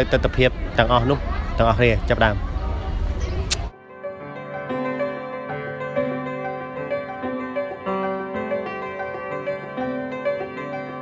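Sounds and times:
instrumental music: 3.7s - 11.0s.

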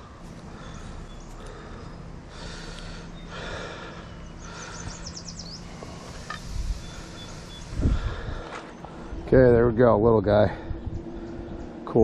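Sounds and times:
man breathing hard: 0.2s - 9.3s.

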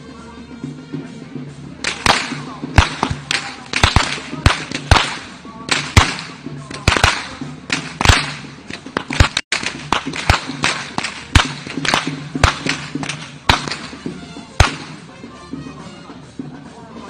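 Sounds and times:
whips cracking: 1.8s - 15.1s.

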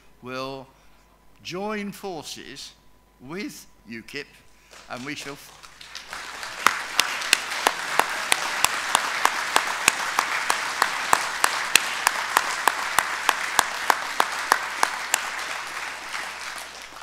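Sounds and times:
audience applauding: 4.7s - 17.0s
sharp evenly spaced claps: 4.7s - 17.0s.

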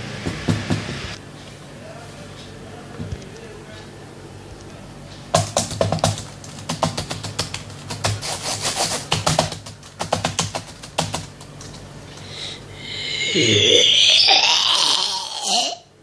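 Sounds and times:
laptop keyboard clicking: 5.3s - 8.2s, 9.1s - 11.8s.

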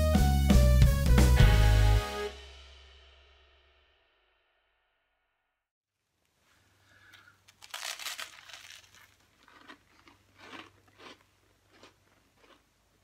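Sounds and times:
wrapper crinkling: 7.0s - 10.5s
biting into snack bar: 7.1s - 12.6s.

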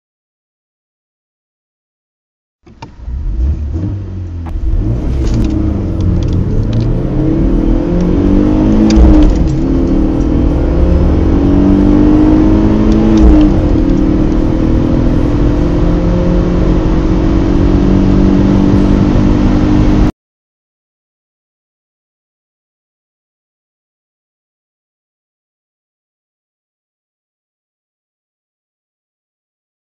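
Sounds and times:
car engines accelerating hard: 2.7s - 20.1s.

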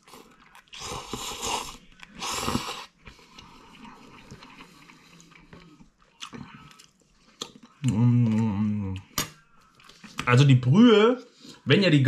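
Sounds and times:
person slurping noodles: 0.0s - 5.3s
soft chewing sounds: 0.0s - 10.4s.

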